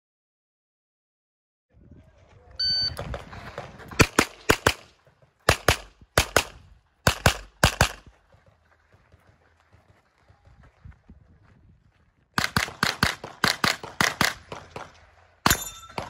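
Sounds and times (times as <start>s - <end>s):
electronic start beep: 2.6s - 3.0s
gunshots: 2.9s - 8.1s, 12.4s - 16.0s.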